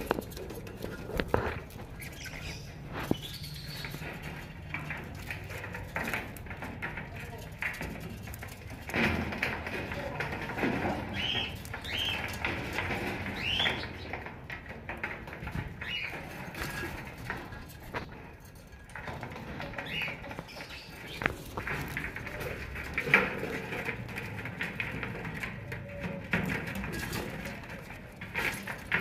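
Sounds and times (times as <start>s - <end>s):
soft bird chatter: 0.0s - 29.0s.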